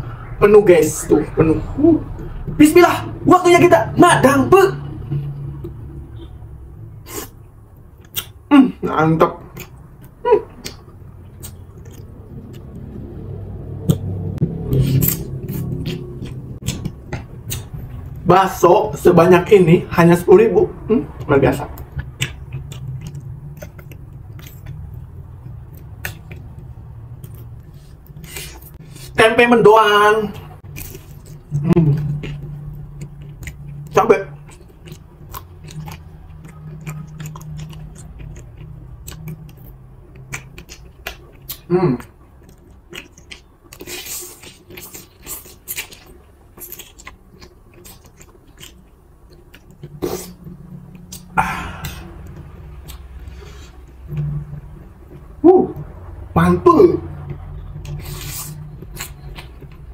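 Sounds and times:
person chewing noodles: 7.0s - 8.5s, 9.4s - 18.2s, 21.0s - 29.2s, 30.3s - 55.3s, 57.2s - 59.9s.

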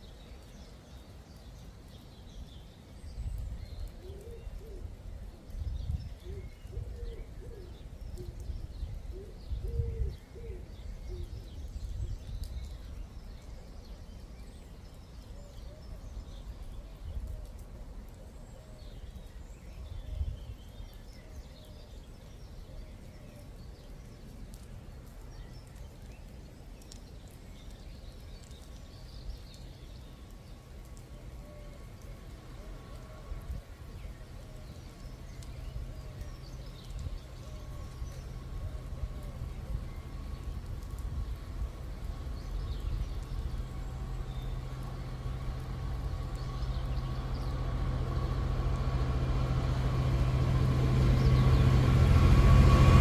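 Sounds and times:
small birds chirping: 0.0s - 53.0s
gusty low rumbles: 4.9s - 12.8s, 31.8s - 53.0s.

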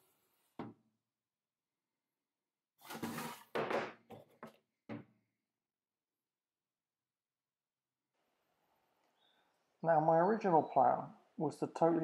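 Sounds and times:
plastic case scraping on worktop: 2.8s - 3.6s.

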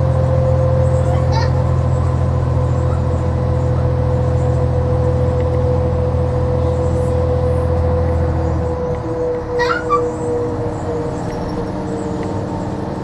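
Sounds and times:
bus engine drone: 0.0s - 13.0s.

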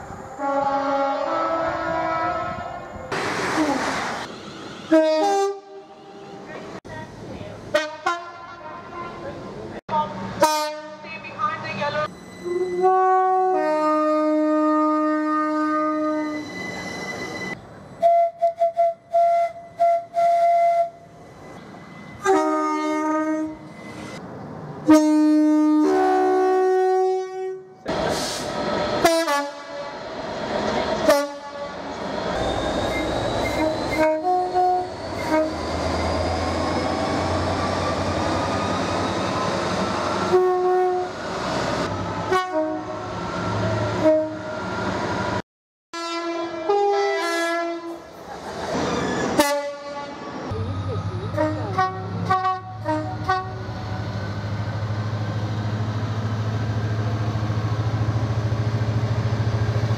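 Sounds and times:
two-tone locomotive air horn: 0.4s - 2.7s, 4.9s - 6.4s, 7.7s - 9.2s, 10.4s - 11.0s, 12.4s - 16.6s, 22.2s - 23.7s, 24.9s - 30.0s, 31.0s - 31.8s, 32.9s - 35.6s, 40.2s - 41.2s, 42.3s - 43.1s, 43.9s - 44.6s, 46.0s - 48.0s, 49.4s - 50.2s, 51.3s - 53.7s
train wheels on rails: 27.8s - 40.4s, 47.8s - 59.9s
locomotive engine hum: 47.9s - 59.9s.

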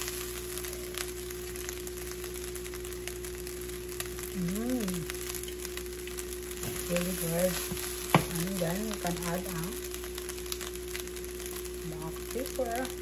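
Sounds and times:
rice sizzling in a hot pan: 0.0s - 13.0s
person humming: 4.4s - 5.1s
spatula scraping and tapping pan: 6.6s - 8.4s.

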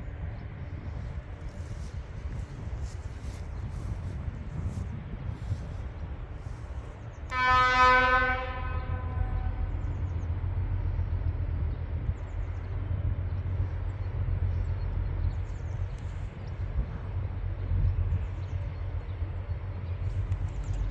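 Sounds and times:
low rumble of train: 0.0s - 20.9s
locomotive horn blast: 7.3s - 9.9s.

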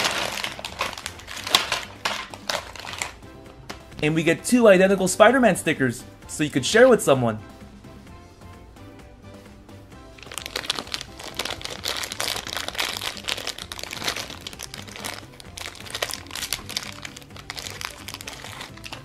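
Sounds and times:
plastic wrapper crinkling: 0.0s - 3.2s, 10.2s - 19.0s
background music: 0.0s - 19.0s.

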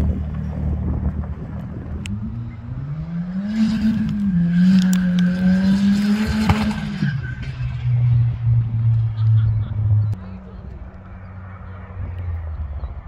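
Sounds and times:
car engine accelerating: 0.0s - 13.0s
sharp clicks and ticks: 1.1s - 2.2s, 4.0s - 5.7s.

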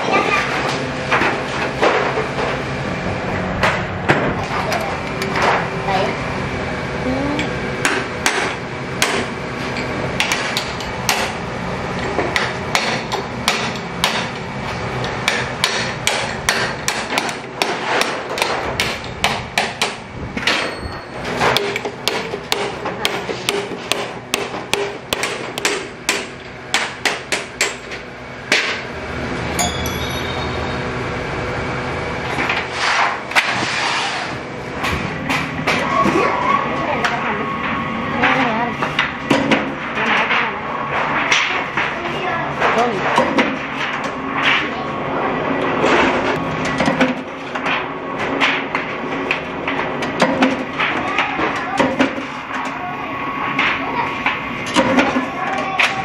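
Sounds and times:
steady machine hum: 0.0s - 56.0s
hammer striking steel chisel: 21.5s - 27.8s.

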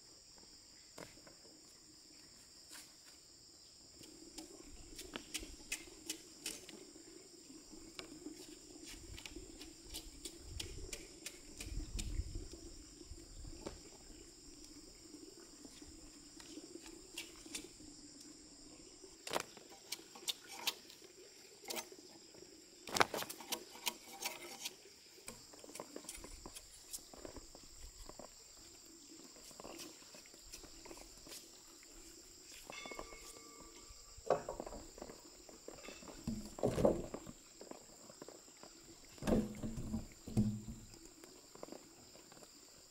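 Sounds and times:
insects chirring: 0.0s - 42.9s
wooden logs knocking: 34.3s - 35.2s, 35.8s - 37.4s, 39.2s - 41.0s.

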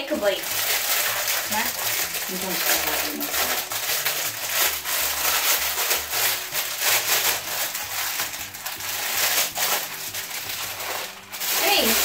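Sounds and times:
fidget toy rubbing and rustling: 0.0s - 12.0s
quiet background music: 0.0s - 12.0s.

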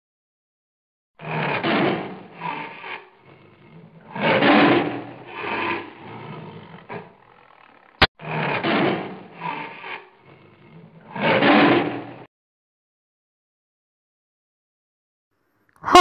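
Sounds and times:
lion roaring: 1.2s - 12.3s.

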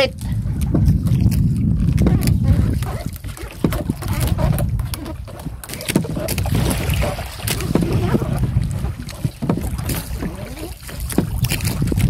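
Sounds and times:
sea rushing: 0.0s - 12.0s
wind buffeting microphone: 0.0s - 12.0s
fishing gear knocks and clicks: 0.5s - 12.0s.

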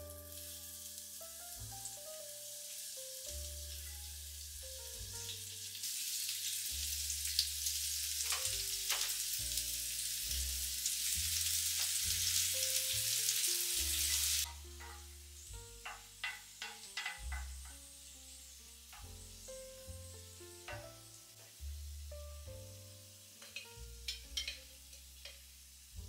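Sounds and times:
soft background music: 0.0s - 26.0s
vegetables sizzling in oil: 0.0s - 26.0s
spatula clicking in pan: 8.2s - 9.2s, 15.8s - 17.8s, 23.4s - 25.5s.

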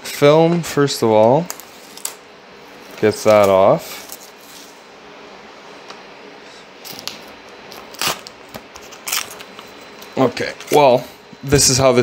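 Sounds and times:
plastic film crinkling: 6.8s - 10.2s.

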